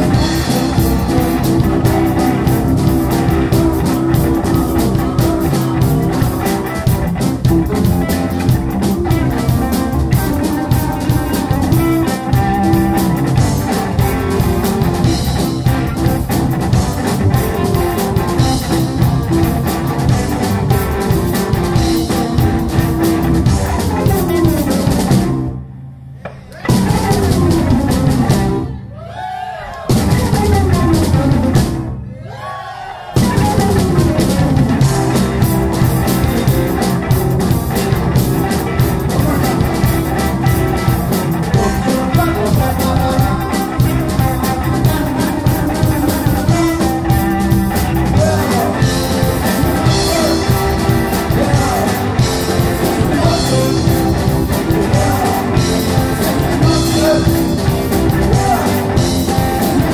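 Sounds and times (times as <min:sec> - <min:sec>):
person singing: 0:00.0 - 0:16.4, 0:26.2 - 0:28.7, 0:30.0 - 0:31.6, 0:33.2 - 0:37.1, 0:38.0 - 0:59.9
drum kit: 0:00.0 - 0:25.6, 0:26.2 - 0:28.8, 0:29.7 - 0:32.0, 0:33.1 - 0:59.9
electric guitar: 0:00.0 - 0:28.8, 0:29.8 - 0:32.0, 0:33.2 - 0:59.9.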